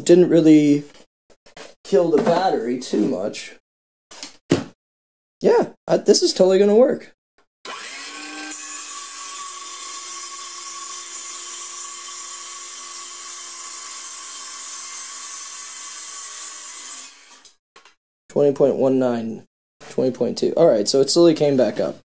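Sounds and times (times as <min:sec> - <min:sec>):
circular saw cutting sheet: 0:07.7 - 0:17.6.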